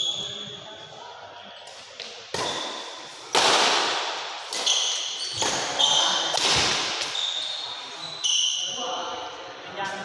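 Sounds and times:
racket striking shuttlecock: 2.3 - 7.2
shoes squeaking on court: 4.5 - 8.7.

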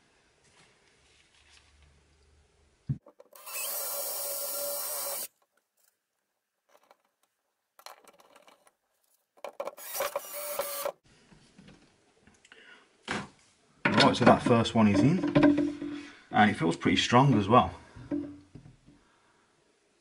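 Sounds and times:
cordless drill drilling wood: 3.3 - 5.4, 9.7 - 11.0.

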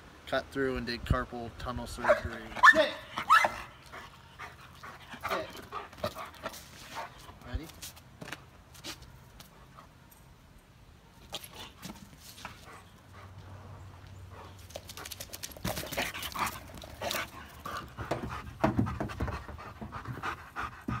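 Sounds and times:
dog panting: 3.6 - 7.4, 14.3 - 21.0.

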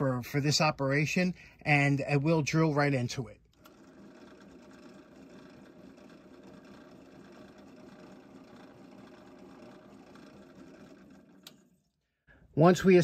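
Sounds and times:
drill press running: 3.5 - 12.0.

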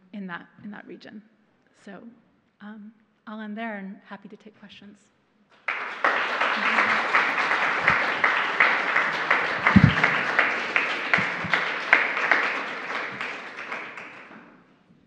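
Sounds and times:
audience applauding: 5.6 - 14.6.

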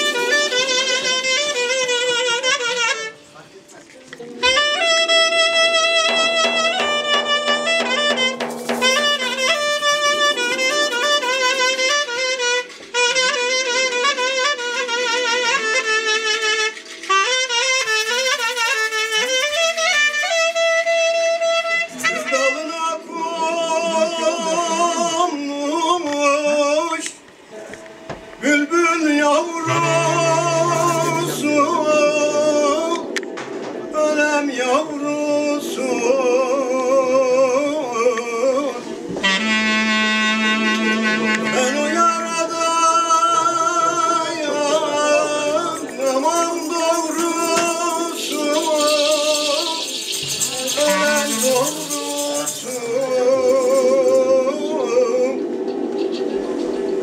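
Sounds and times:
clarinets playing folk melody: 0.0 - 3.3, 4.4 - 22.7, 29.6 - 33.1, 39.2 - 42.3, 43.8 - 53.0
voices singing: 28.4 - 33.4, 41.5 - 55.7
hissing shimmer: 29.6 - 32.9, 45.6 - 53.2.

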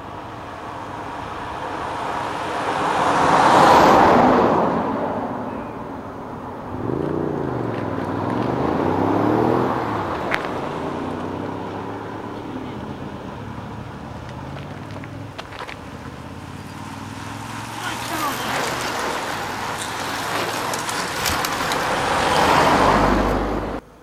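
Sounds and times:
cars passing: 0.0 - 24.0
engine pitch rising and falling: 6.6 - 13.3.

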